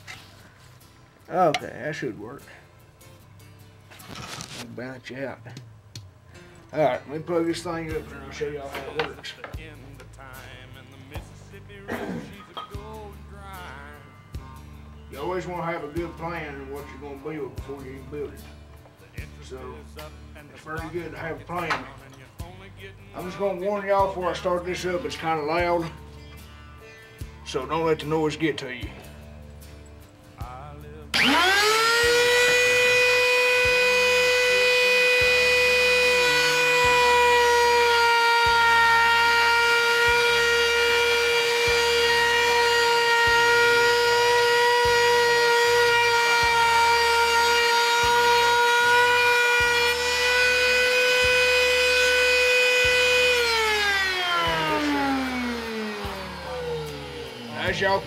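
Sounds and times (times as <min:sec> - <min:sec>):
electric router whining: 0:06.8 - 0:09.6, 0:31.1 - 0:58.0.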